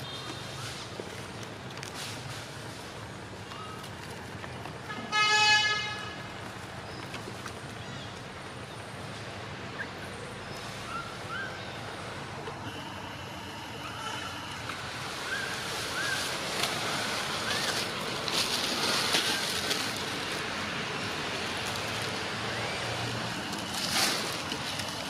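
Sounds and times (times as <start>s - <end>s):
steady outdoor hiss: 0.0s - 25.0s
rustling and crackling: 15.7s - 22.2s, 23.3s - 25.0s.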